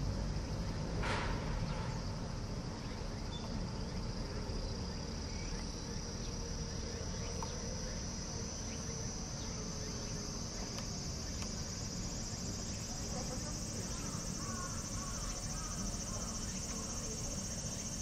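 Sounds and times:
high-pitched insect chorus: 0.0s - 18.0s.

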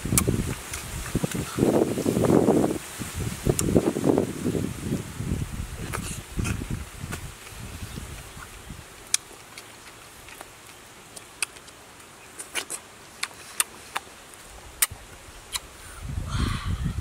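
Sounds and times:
fruit skin peeling clicks: 14.8s - 15.7s
low rumble: 16.1s - 17.0s.

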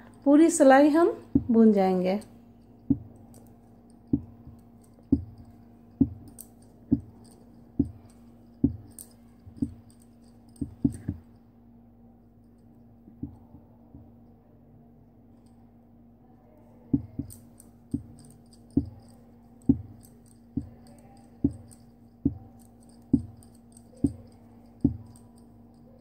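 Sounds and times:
knitting needles knocking: 1.2s - 1.7s, 2.8s - 11.3s, 16.9s - 25.4s
knitting needles clicking lightly: 17.0s - 26.0s.

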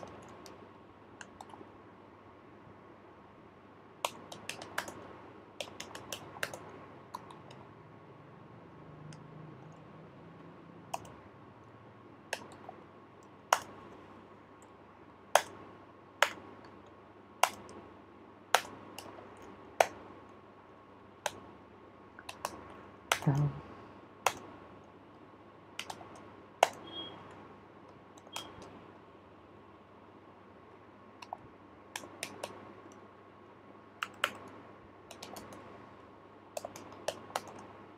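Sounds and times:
faint steady hum: 0.0s - 37.9s
computer keyboard key clicks: 4.0s - 5.0s, 5.6s - 7.6s, 22.2s - 23.3s, 24.2s - 24.5s, 25.8s - 26.8s, 34.0s - 35.6s, 36.6s - 37.7s.

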